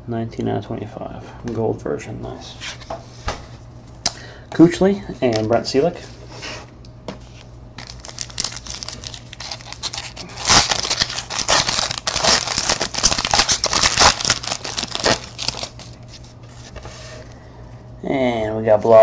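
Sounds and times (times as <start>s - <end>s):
foil wrapper tearing and crinkling: 7.8s - 16.2s.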